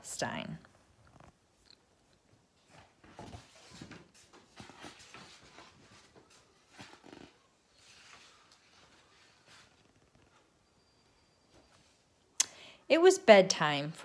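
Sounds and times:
book pages turning: 2.6s - 10.5s.

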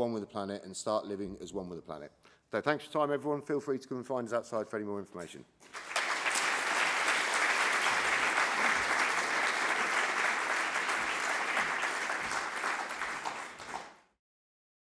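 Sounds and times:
audience applauding: 5.6s - 14.1s.

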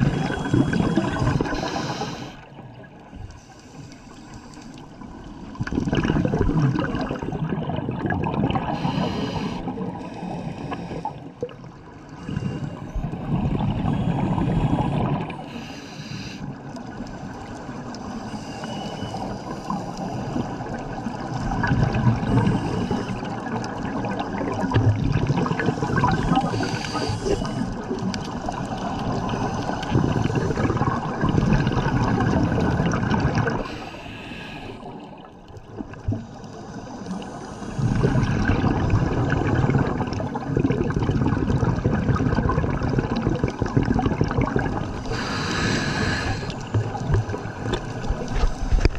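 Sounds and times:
crackling exhaust bubbles underwater: 0.0s - 48.9s
regulator inhalation hisses: 0.1s - 2.5s, 8.7s - 11.3s, 15.5s - 16.5s, 26.2s - 27.8s, 33.6s - 35.0s, 45.0s - 46.7s.

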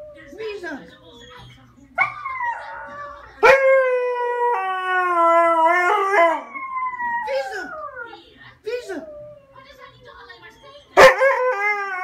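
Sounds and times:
dog howling: 2.0s - 8.2s, 11.0s - 12.0s.

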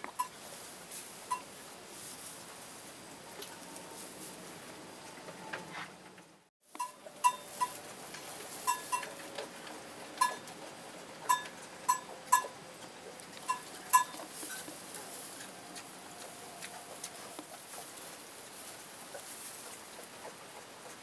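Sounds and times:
pigs squeaky clicks: 11.3s - 17.9s.

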